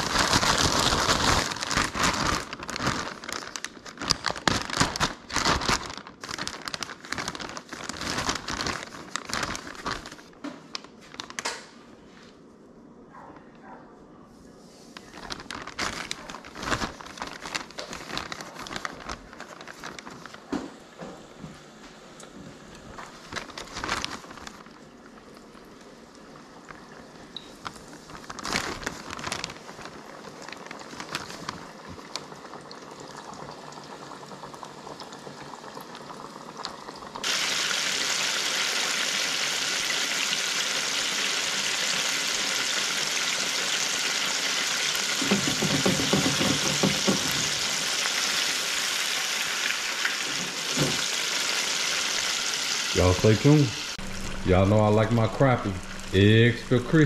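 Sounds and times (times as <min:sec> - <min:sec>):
fish deep-frying in oil: 0:23.5 - 0:57.0
knocks: 0:45.2 - 0:47.4.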